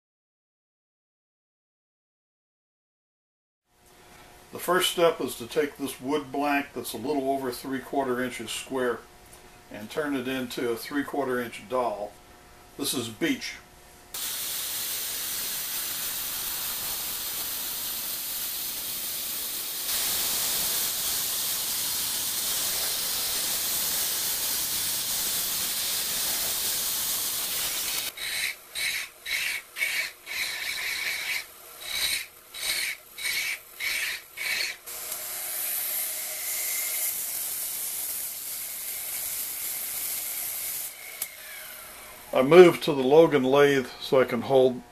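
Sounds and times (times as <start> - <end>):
lathe cutter shaving wood: 19.8 - 42.6.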